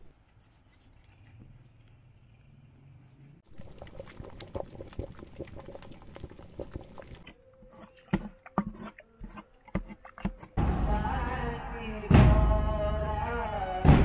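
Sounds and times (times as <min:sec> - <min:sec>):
masher squelching food in pot: 0:03.4 - 0:10.6.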